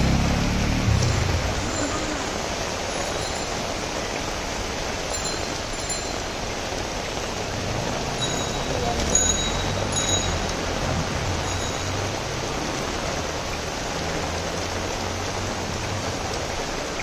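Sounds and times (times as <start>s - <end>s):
motorcycle engine rumble: 0.0s - 4.7s
heavy rain on wet street: 0.0s - 17.0s.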